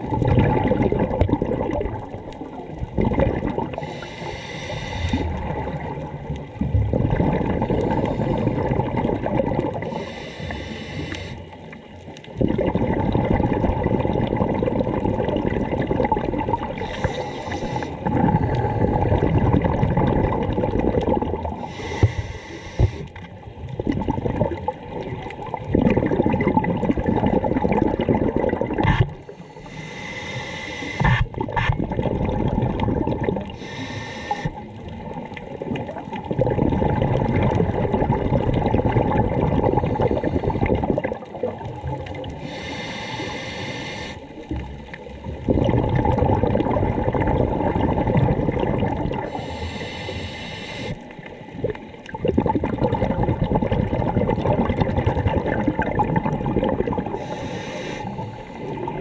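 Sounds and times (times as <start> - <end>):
bubbling exhalation: 0.0 - 4.0, 5.0 - 10.1, 12.3 - 22.2, 23.7 - 29.2, 31.0 - 43.3, 44.5 - 49.5, 51.5 - 59.0
regulator hissing inhalations: 3.8 - 5.3, 9.8 - 11.6, 16.8 - 18.0, 21.6 - 23.1, 29.2 - 31.2, 33.6 - 34.6, 42.4 - 44.4, 49.3 - 51.0, 57.2 - 58.8.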